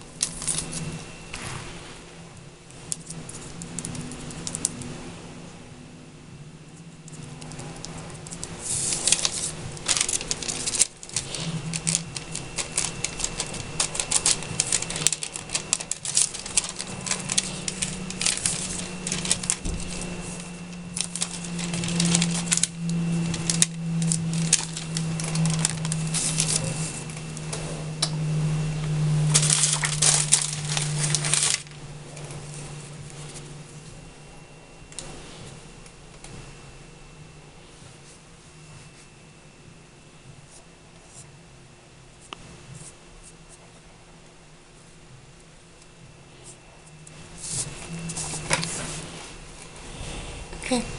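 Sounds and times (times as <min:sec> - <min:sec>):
low hum: 0:00.0 - 0:50.9
paper crinkling and rustling: 0:00.2 - 0:01.8, 0:02.9 - 0:04.8, 0:07.0 - 0:33.9, 0:46.4 - 0:50.8.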